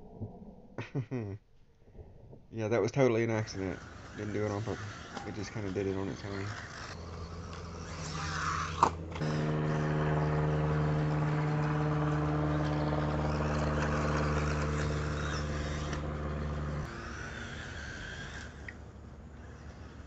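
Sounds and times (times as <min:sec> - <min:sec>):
steady motor hum: 0:03.2 - 0:20.0.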